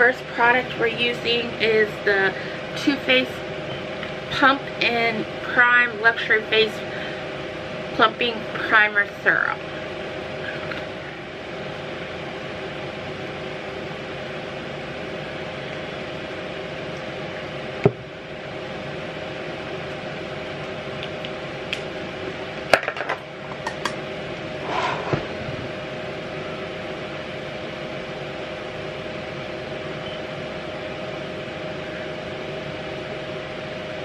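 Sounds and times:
machine hum: 0.0 - 34.0.

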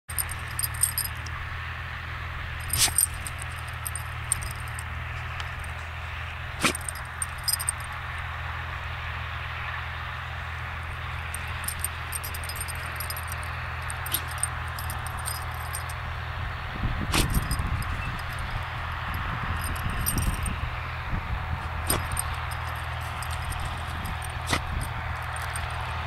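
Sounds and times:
puppy snorting: 6.6 - 6.9.

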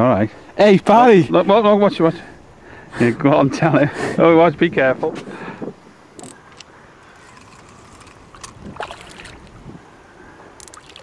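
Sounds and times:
low wind rumble: 0.0 - 11.0
water lapping against boat: 7.3 - 9.5.

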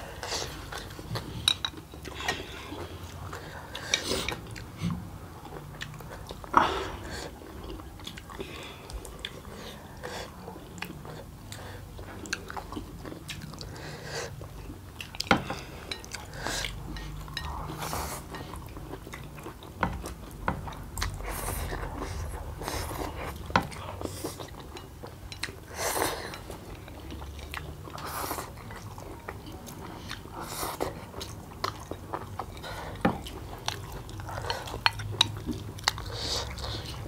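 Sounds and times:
chewing: 0.2 - 37.0.

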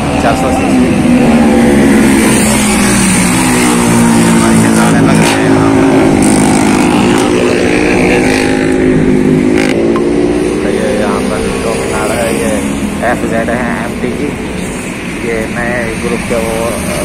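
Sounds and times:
motorcycle engine running: 1.2 - 14.4.

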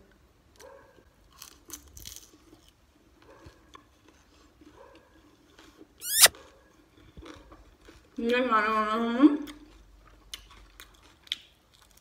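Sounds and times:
crispy shell crunching: 1.3 - 2.8, 10.4 - 12.0
quiet chewing: 1.3 - 12.0.

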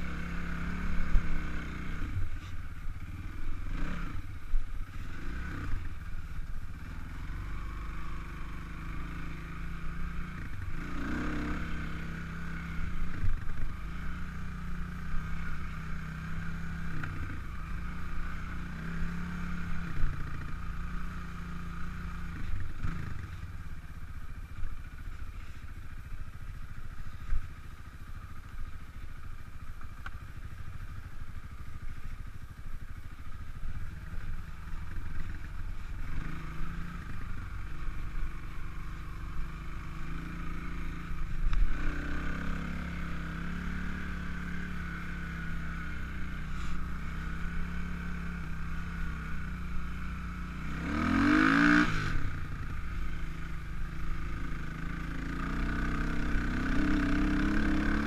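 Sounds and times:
dirt bike engine revving: 3.1 - 4.3, 6.8 - 23.4, 34.8 - 49.4, 50.6 - 52.5, 55.0 - 58.0.

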